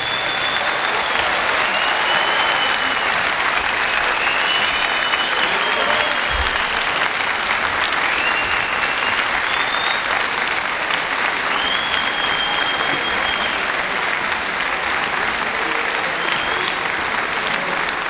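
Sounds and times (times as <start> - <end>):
high whistles: 0.0 - 7.0, 8.0 - 10.3, 11.5 - 13.7
audience applauding: 0.0 - 18.0.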